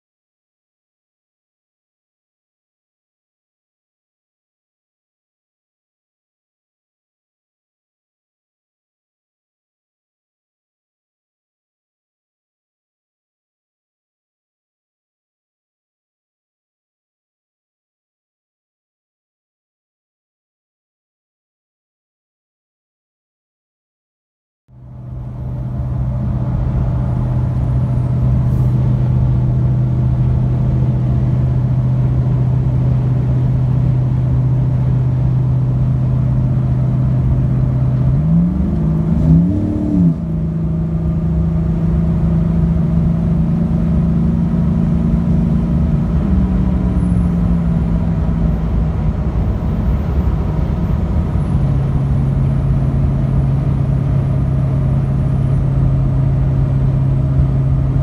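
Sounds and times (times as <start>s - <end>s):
loud exhaust drone: 24.7s - 58.0s.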